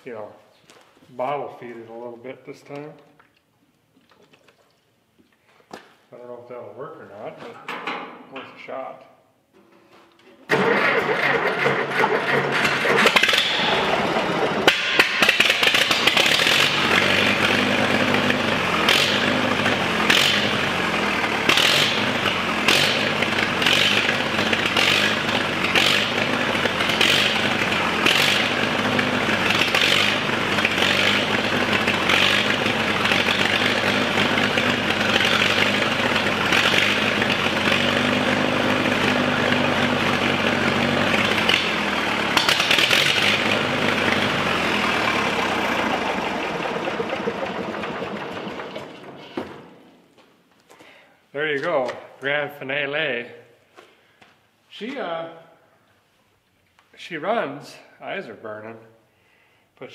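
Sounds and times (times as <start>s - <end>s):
tractor engine running unevenly: 10.5s - 49.8s.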